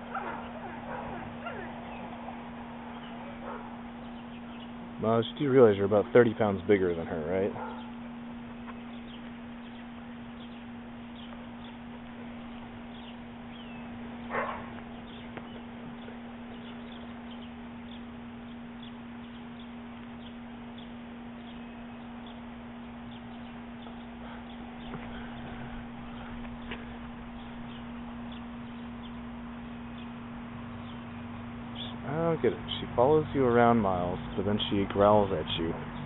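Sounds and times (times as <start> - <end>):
steady low hum: 0.0 - 36.0
dog barking: 0.1 - 1.8, 3.4 - 3.8, 7.5 - 8.0, 14.3 - 14.8.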